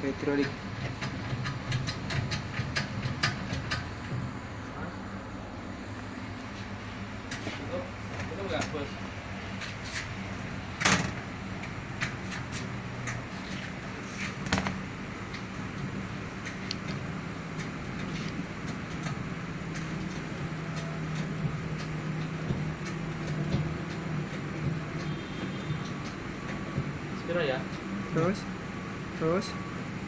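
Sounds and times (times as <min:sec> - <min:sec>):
steady low hum: 0:00.0 - 0:30.0
metallic clicks and knocks: 0:00.3 - 0:04.2.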